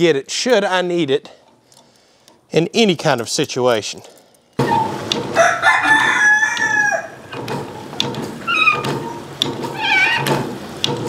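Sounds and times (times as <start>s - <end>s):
rooster crowing: 4.8s - 7.3s.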